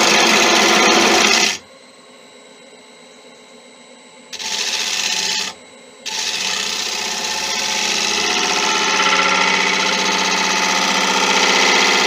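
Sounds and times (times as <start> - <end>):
gouge cutting wood on lathe: 0.0 - 1.6, 4.4 - 12.0.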